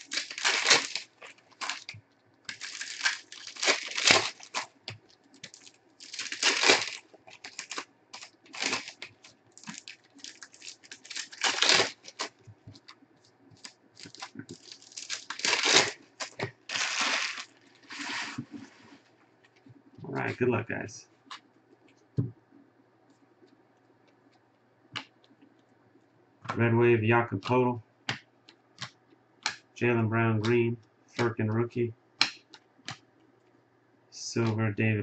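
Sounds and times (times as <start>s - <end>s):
foil packs tearing: 0.0s - 1.9s, 2.5s - 4.7s, 5.4s - 12.4s, 13.6s - 18.9s
wrappers crinkling: 0.0s - 13.0s, 13.6s - 19.1s.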